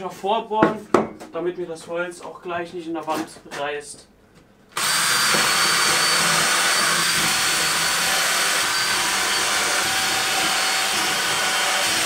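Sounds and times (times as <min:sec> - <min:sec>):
blower motor humming: 0:04.8 - 0:12.0.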